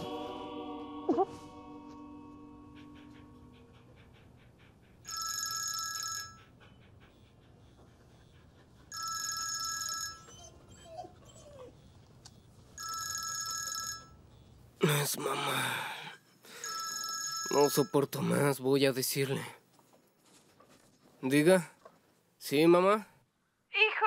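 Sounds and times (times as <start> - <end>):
phone ringtone ringing: 5.1 - 6.4, 8.9 - 10.3, 12.8 - 14.2, 16.5 - 18.0.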